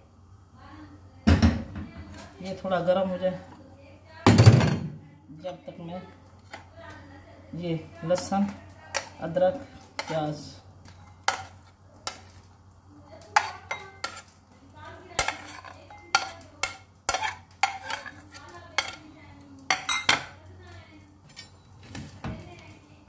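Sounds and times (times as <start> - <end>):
metal spoon clinking on plate: 15.2 - 18.2, 19.7 - 20.4.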